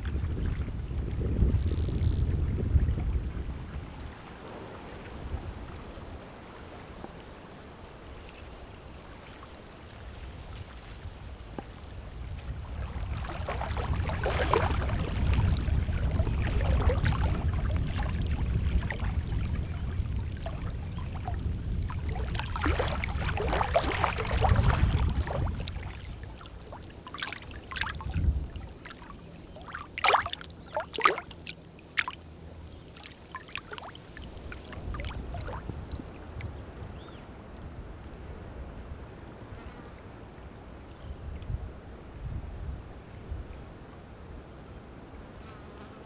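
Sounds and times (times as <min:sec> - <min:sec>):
wind on microphone: 0:00.0 - 0:31.4, 0:33.1 - 0:45.6
water lapping at shoreline: 0:00.0 - 0:38.8
sharp water splashes: 0:13.1 - 0:15.6, 0:22.0 - 0:35.6.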